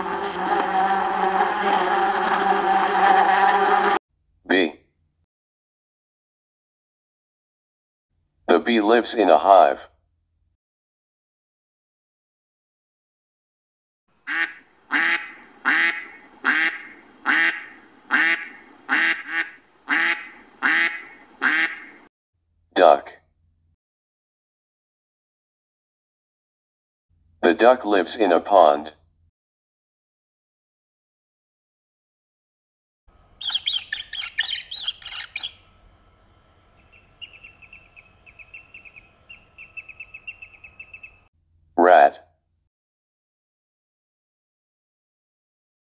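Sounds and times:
duck quacking: 14.2s - 22.1s
rat squeaking: 33.4s - 35.7s, 36.8s - 41.3s.

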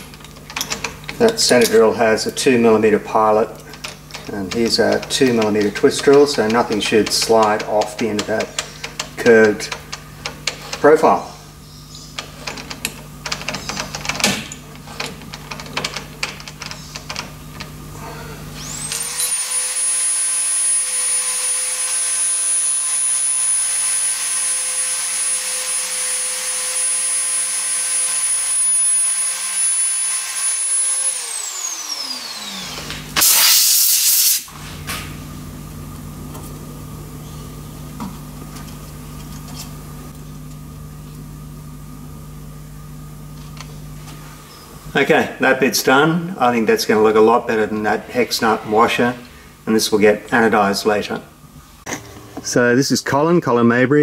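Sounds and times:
spindle motor whine: 0.0s - 33.3s
drill chuck clicks and knocks: 3.6s - 10.9s
loud hiss: 33.2s - 34.5s.

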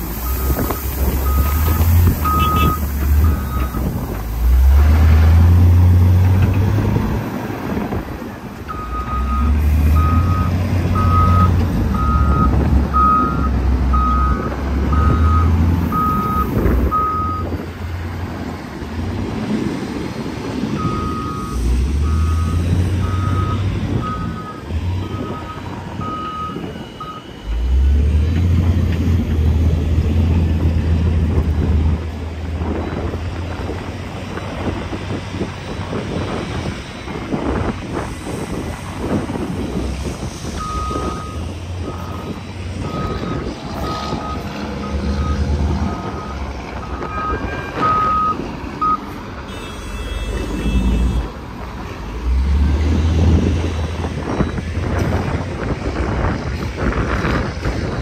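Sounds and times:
diesel truck engine: 0.0s - 58.0s
reversing alarm beeping: 0.2s - 4.0s, 8.7s - 17.6s, 20.8s - 28.8s, 40.6s - 51.3s.

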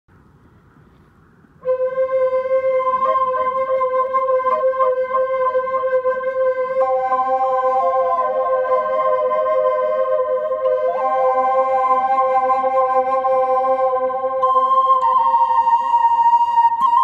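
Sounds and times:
wooden flute melody: 1.6s - 17.0s.

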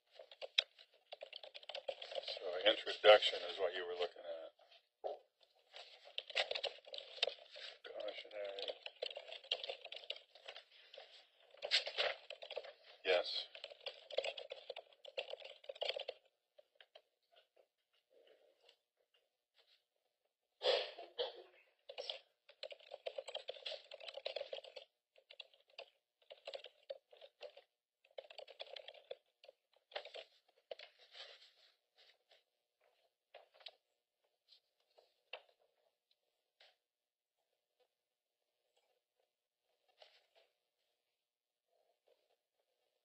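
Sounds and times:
faint keyboard typing: 0.0s - 17.5s, 21.8s - 33.9s.

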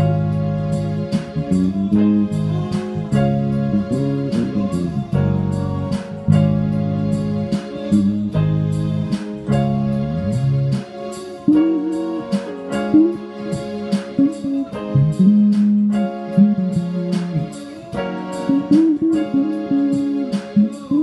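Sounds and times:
electric bass guitar: 0.0s - 21.0s
keyboard chords: 0.0s - 21.0s
steady beat: 0.0s - 21.0s.

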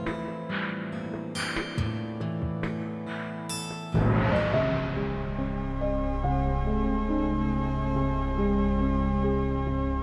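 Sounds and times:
steady low drone: 4.0s - 10.0s.

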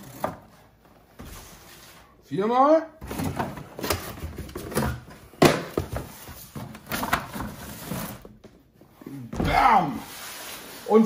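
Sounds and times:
cardboard rustling and scraping: 0.0s - 2.2s, 3.0s - 8.5s, 9.4s - 11.0s.

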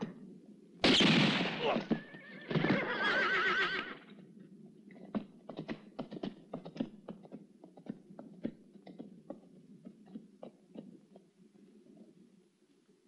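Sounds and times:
horse whinnying: 1.6s - 4.1s
hoof clops on hard dirt: 4.9s - 11.4s.

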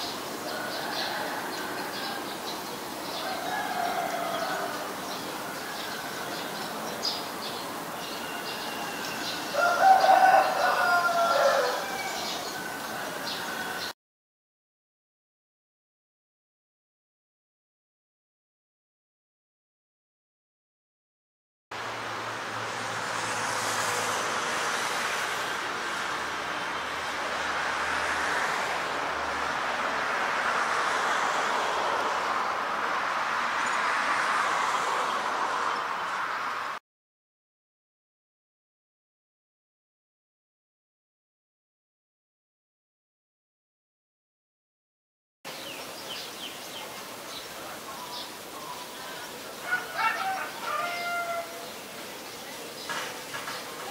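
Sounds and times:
outdoor background hiss: 0.0s - 13.9s, 45.5s - 53.9s
rooster crowing: 0.4s - 2.4s, 3.1s - 6.6s, 8.2s - 13.9s, 49.6s - 51.7s
small birds chirping: 45.5s - 50.8s.

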